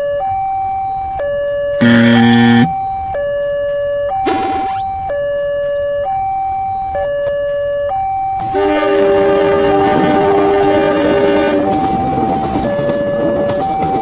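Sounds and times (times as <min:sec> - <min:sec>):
train horn: 0:01.8 - 0:02.8, 0:08.4 - 0:11.9
level-crossing alarm two notes: 0:01.8 - 0:03.2
approaching train: 0:08.4 - 0:14.0.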